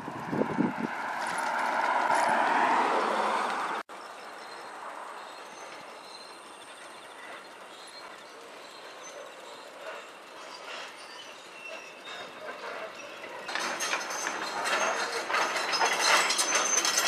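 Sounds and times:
vehicle passing: 0.0s - 3.9s.

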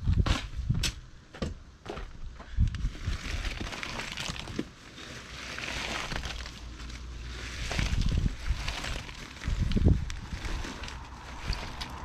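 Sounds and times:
stones scraping and clattering: 2.8s - 12.0s.

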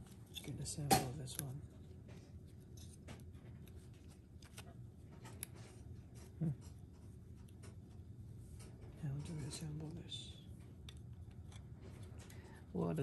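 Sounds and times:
plastic parts clicking and scraping: 0.0s - 8.0s, 10.6s - 12.6s.

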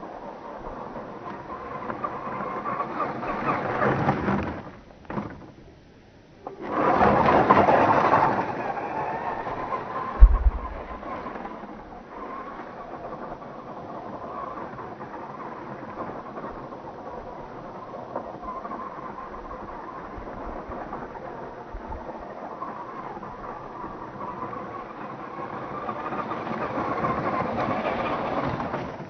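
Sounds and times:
toy truck electric motor whining: 0.0s - 5.4s, 6.5s - 10.1s, 12.2s - 29.0s
short low thump: 10.2s - 11.4s.

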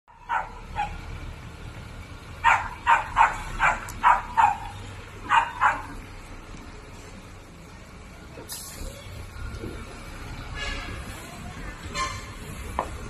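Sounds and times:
diesel truck engine rumbling: 0.1s - 13.0s
dog barking: 0.2s - 1.0s, 2.4s - 6.0s.

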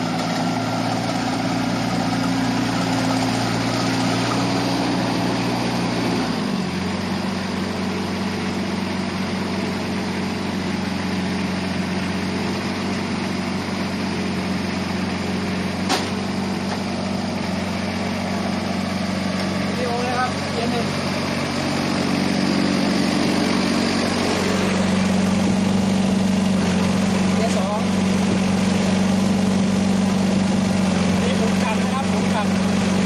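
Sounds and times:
diesel tractor engine running: 0.0s - 33.0s.

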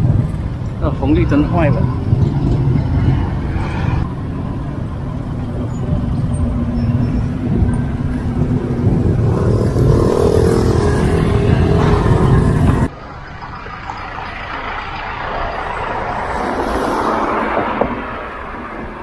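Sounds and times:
car and motorbike engines: 0.0s - 19.0s
low traffic rumble: 0.0s - 19.0s.

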